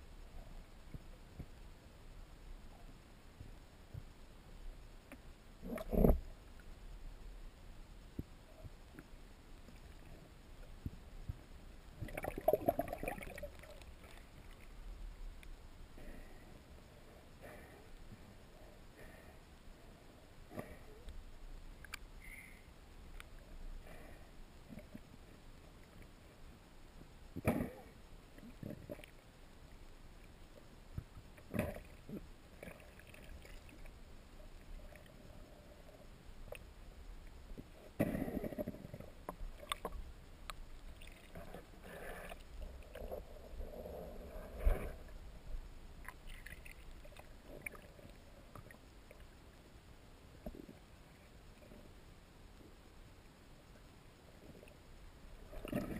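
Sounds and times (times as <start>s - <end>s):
faint underwater water noise: 0.0s - 55.9s
faint clicks: 2.8s - 6.8s, 8.0s - 11.5s, 12.1s - 15.6s, 20.5s - 23.6s, 24.2s - 55.9s
air bubbles bubbling: 12.0s - 13.7s.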